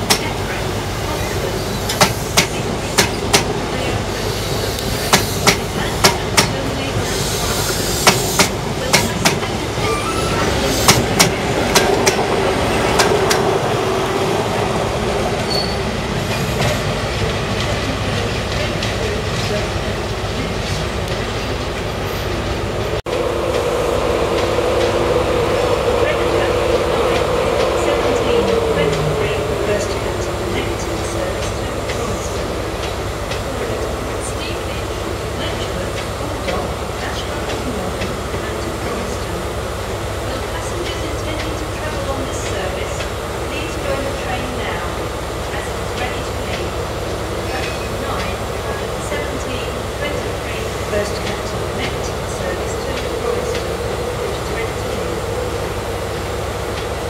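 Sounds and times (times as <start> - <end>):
rail noise: 0.0 - 57.0
train wheels clicking over rail joint: 1.9 - 3.5
diesel engine drone: 22.9 - 44.8
low hum: 23.0 - 30.7.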